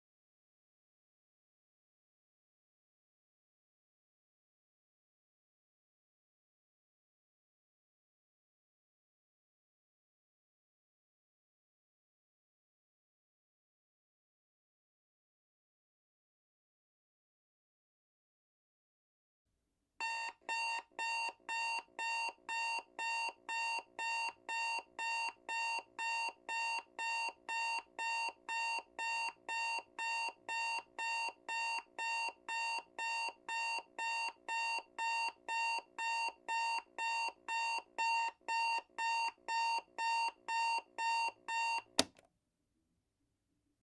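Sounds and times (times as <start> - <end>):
alarm clock beeping: 20.0 - 42.0.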